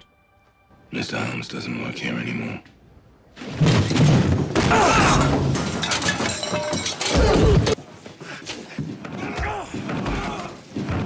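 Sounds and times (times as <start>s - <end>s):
crashing and breaking: 3.3s - 7.8s
shouts and grunts: 4.7s - 5.4s, 9.2s - 10.6s.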